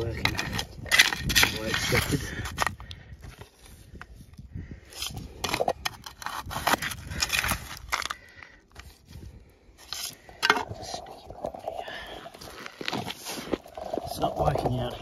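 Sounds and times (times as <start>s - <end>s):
gravel scraping in plastic scoop: 0.0s - 2.8s, 9.9s - 15.0s.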